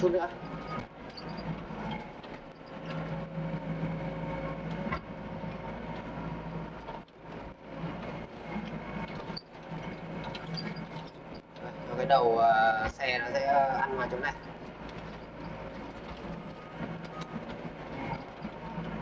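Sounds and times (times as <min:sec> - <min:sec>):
excavator engine and hydraulics: 0:00.0 - 0:19.0.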